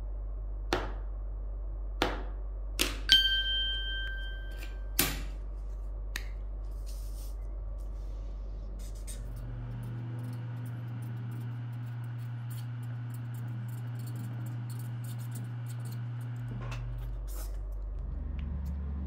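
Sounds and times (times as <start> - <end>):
steady low hum: 0.0 - 19.0
bright bell ding: 3.1 - 4.9.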